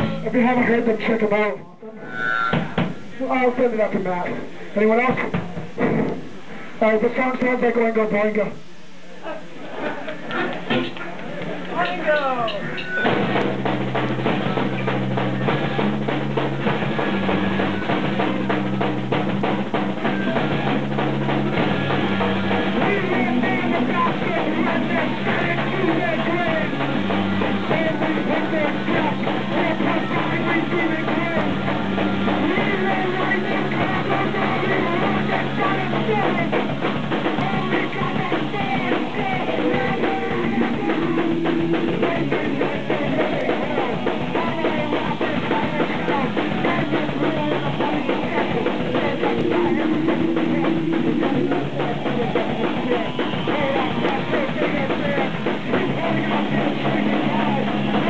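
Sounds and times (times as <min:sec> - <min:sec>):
bass guitar: 0:00.0 - 0:01.0, 0:10.2 - 0:58.0
drum kit: 0:00.0 - 0:01.5, 0:02.1 - 0:07.9, 0:10.0 - 0:58.0
electric guitars: 0:10.2 - 0:58.0
person singing into microphone: 0:22.8 - 0:27.0, 0:27.6 - 0:58.0.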